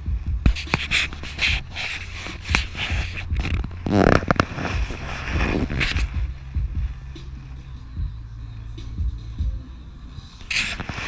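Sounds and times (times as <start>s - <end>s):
steady low hum: 0.0s - 11.0s
rush of noise: 0.1s - 8.1s
rubbing on camera microphone: 0.4s - 7.6s, 10.4s - 11.0s.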